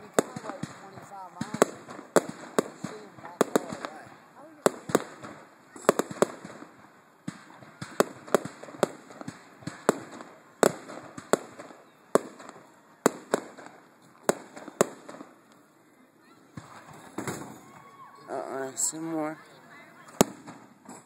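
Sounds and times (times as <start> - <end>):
fireworks bursting with sharp bangs: 0.0 - 21.0.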